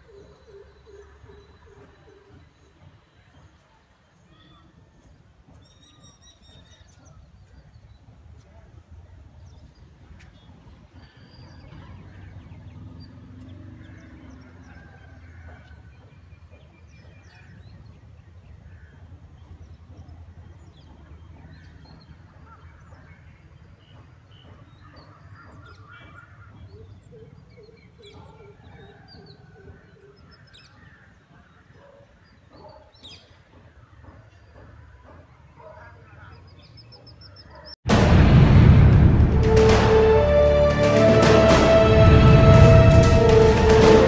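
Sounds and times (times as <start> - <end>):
birds chirping and calling: 9.4 - 37.8
run of short low notes: 37.9 - 44.0
steady low rumble: 37.9 - 44.0.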